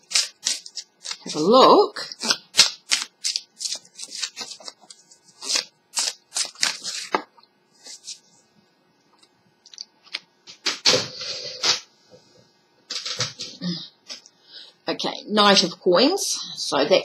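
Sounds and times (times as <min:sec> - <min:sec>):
cards being shuffled: 0:00.0 - 0:01.4, 0:02.2 - 0:08.2.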